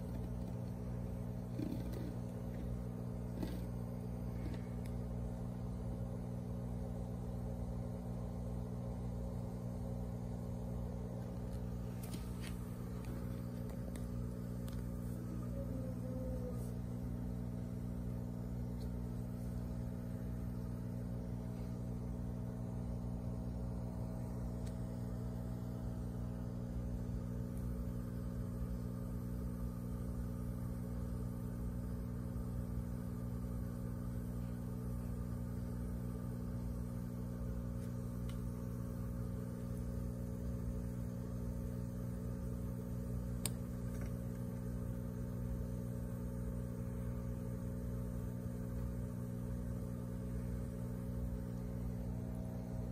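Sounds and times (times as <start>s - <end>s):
aquarium equipment humming: 0.0s - 52.9s.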